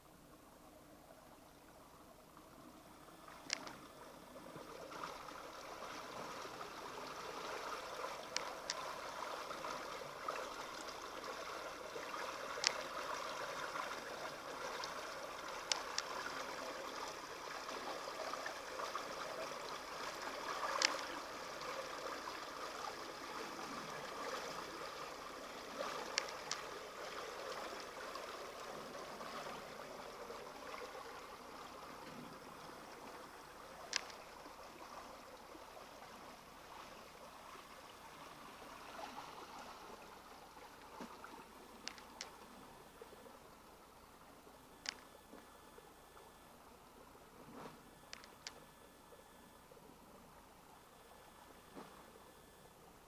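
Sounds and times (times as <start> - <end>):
water rushing and gurgling: 0.8 - 44.2
sharp clicks: 3.4 - 3.8, 44.8 - 45.1, 48.1 - 48.6.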